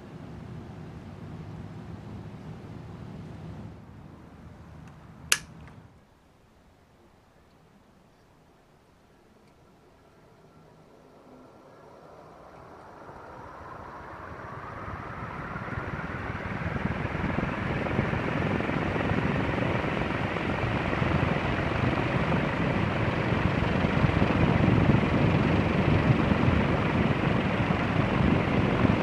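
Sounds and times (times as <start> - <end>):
ceiling fan blades whooshing: 0.0 - 7.9, 8.6 - 29.0
faint motor whine: 0.0 - 29.0.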